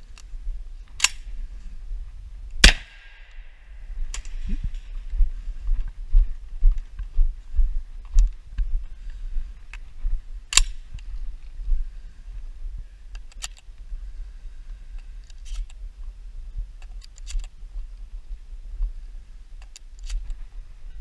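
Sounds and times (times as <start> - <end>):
low microphone rumble: 0.0 - 15.2.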